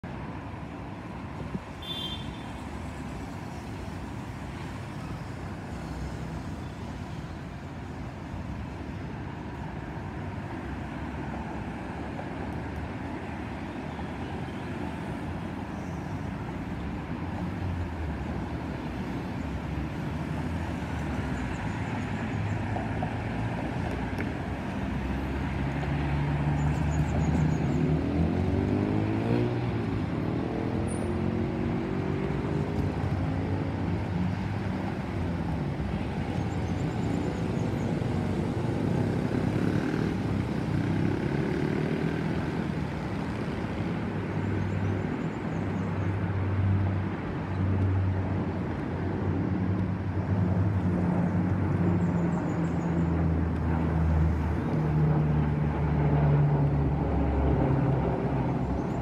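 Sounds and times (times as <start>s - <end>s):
street traffic: 0.0s - 59.0s
turboprop aircraft drone: 26.5s - 59.0s.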